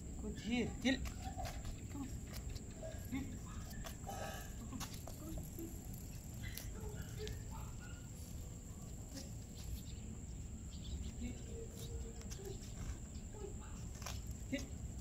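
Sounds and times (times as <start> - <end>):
steady high-pitched whine: 0.0 - 15.0.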